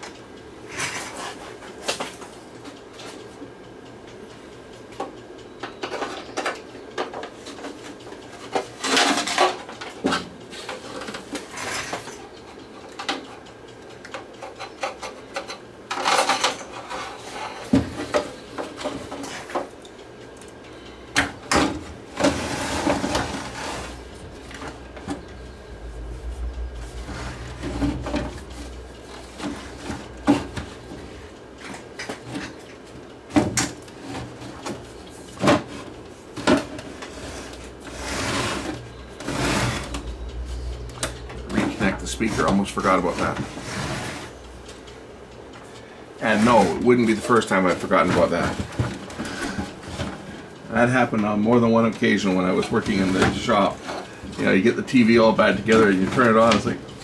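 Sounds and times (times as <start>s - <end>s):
low scraping rumble: 22.4s - 31.6s, 37.3s - 45.6s.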